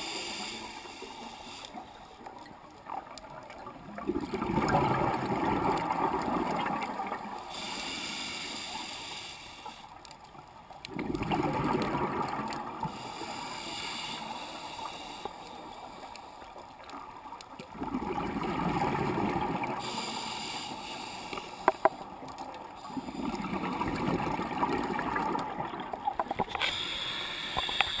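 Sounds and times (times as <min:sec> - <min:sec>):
regulator inhale hiss: 0:00.0 - 0:02.2, 0:07.4 - 0:10.0, 0:12.8 - 0:16.4, 0:19.8 - 0:22.0, 0:26.5 - 0:28.0
exhaled bubbles rushing: 0:04.0 - 0:07.2, 0:10.9 - 0:12.9, 0:17.7 - 0:19.8, 0:23.0 - 0:26.5.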